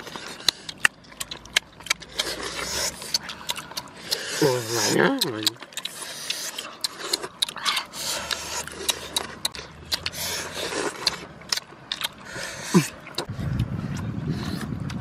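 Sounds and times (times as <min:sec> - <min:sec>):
snail shells clicking: 0:00.0 - 0:12.2
steady low rumble: 0:05.4 - 0:15.0.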